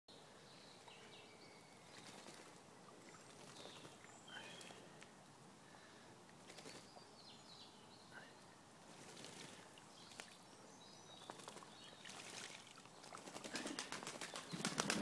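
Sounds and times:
pigeons splashing in water: 1.9s - 4.8s, 6.4s - 6.9s, 8.9s - 10.4s, 11.2s - 15.0s.

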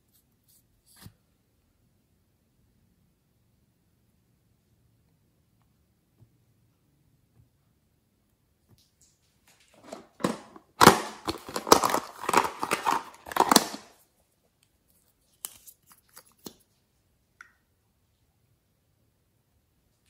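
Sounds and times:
plastic clicking and scraping: 9.8s - 13.9s.

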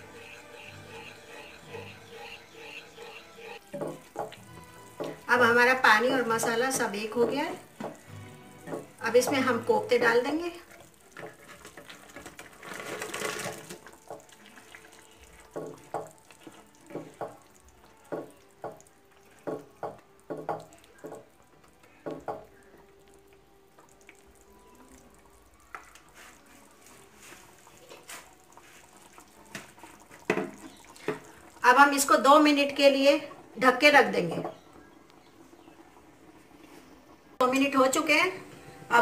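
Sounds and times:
gravy bubbling: 0.0s - 38.4s
spatula knocking against pan: 3.7s - 5.2s, 6.4s - 8.0s, 8.6s - 9.6s, 16.9s - 17.4s, 18.1s - 21.3s
food splashing into gravy: 6.0s - 32.8s.

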